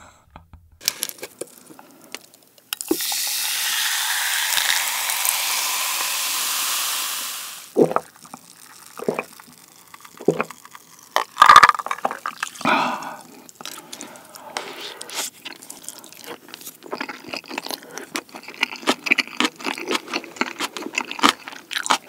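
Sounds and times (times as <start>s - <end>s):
cola fizzing in glass: 2.8s - 12.6s
person gulping: 7.7s - 21.2s
loud exhale: 12.6s - 13.3s.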